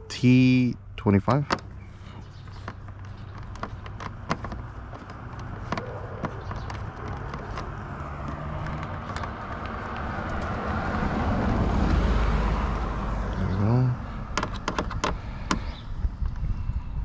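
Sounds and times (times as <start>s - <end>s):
passing vehicle: 1.6s - 17.0s.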